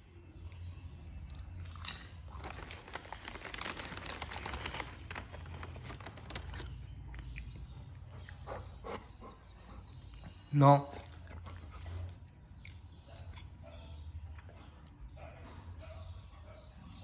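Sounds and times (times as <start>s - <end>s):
potato chip crunching: 1.3s - 7.5s.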